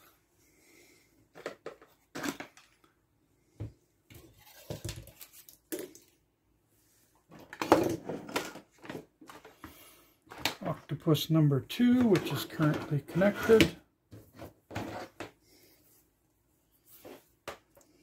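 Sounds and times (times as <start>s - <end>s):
plastic parts clicking and knocking: 1.3s - 2.9s, 7.3s - 9.6s, 10.3s - 10.6s.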